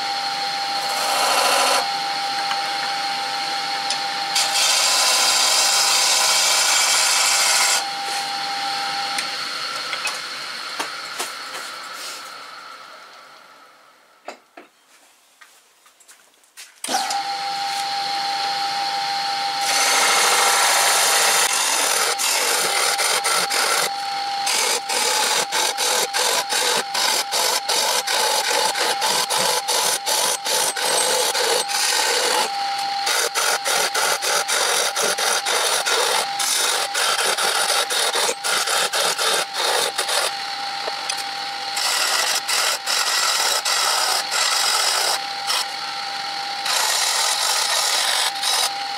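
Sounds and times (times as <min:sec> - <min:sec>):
wood lathe whining: 0:00.0 - 0:13.8, 0:16.8 - 0:48.9
chisel scraping spinning wood: 0:00.8 - 0:01.9, 0:04.4 - 0:07.8, 0:19.6 - 0:45.8, 0:46.6 - 0:48.7.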